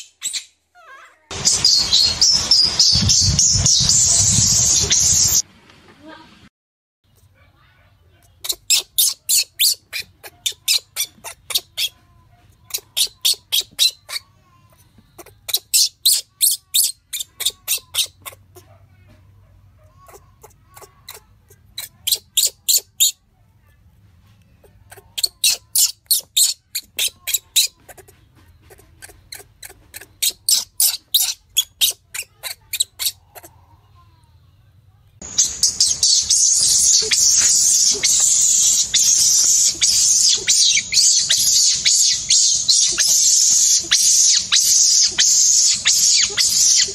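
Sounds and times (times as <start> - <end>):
high-pitched chirping squeaks: 0.0 - 5.4, 8.4 - 12.0, 12.6 - 18.4, 19.9 - 23.2, 24.9 - 33.5, 35.2 - 46.9.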